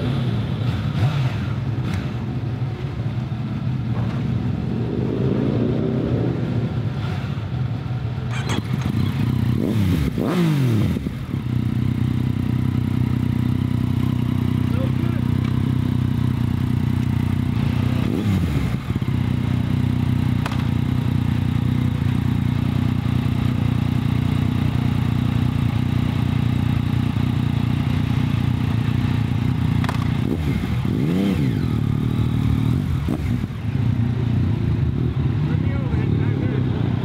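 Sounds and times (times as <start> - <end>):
motorcycle engine running: 0.0 - 37.0
motorcycle throttle blips: 8.2 - 25.4, 28.0 - 33.9.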